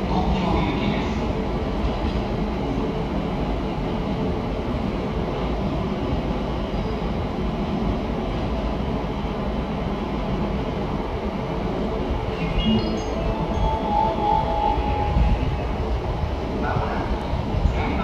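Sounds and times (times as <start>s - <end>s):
electric train pulling away: 12.3s - 16.2s.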